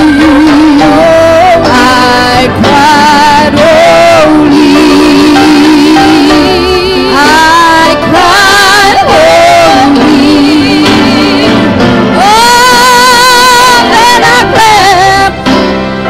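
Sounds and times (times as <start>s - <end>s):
women singing gospel song: 0.0s - 15.4s.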